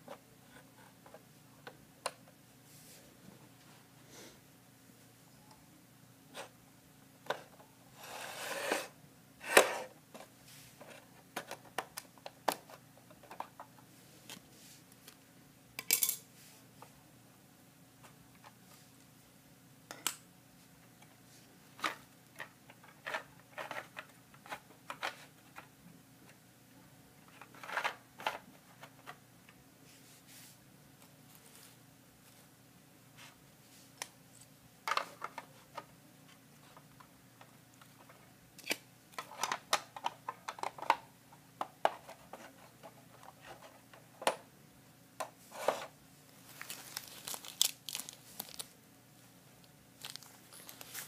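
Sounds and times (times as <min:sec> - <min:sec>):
tissue paper rustling: 0:46.4 - 0:48.7, 0:50.0 - 0:51.0.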